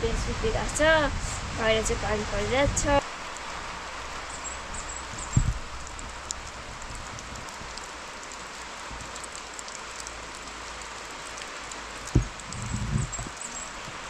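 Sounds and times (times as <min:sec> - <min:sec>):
steady rain falling: 0:00.0 - 0:14.0
dull thump: 0:12.1 - 0:13.3.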